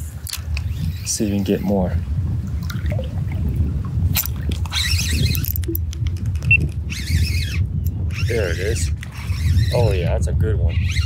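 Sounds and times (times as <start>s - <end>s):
low wind rumble: 0.0s - 11.0s
water sloshing and splashing: 2.4s - 5.9s.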